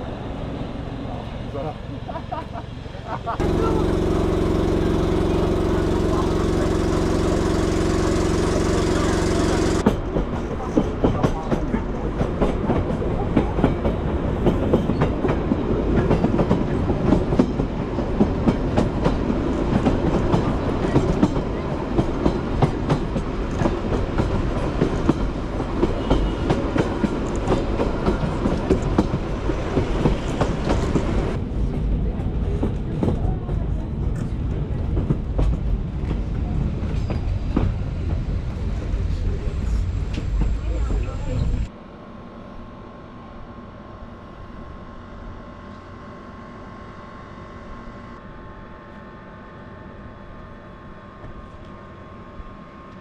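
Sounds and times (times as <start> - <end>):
low drone: 3.4 - 9.9
train wheels clattering over rails: 3.4 - 41.7.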